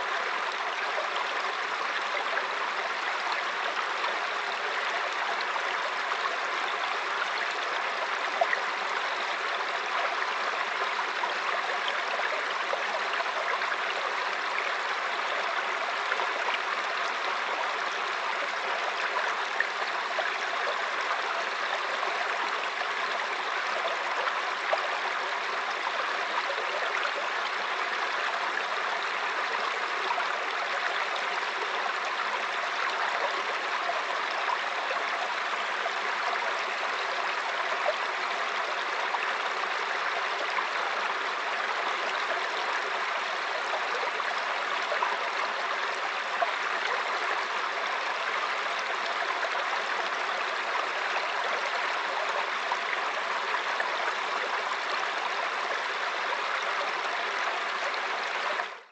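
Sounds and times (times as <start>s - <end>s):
stream flowing over rocks: 0.0s - 58.9s.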